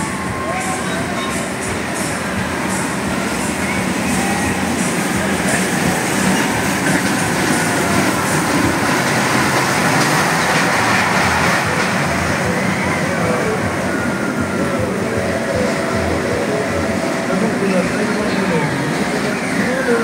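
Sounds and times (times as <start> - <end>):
roller coaster rumbling on track: 0.0 - 20.0.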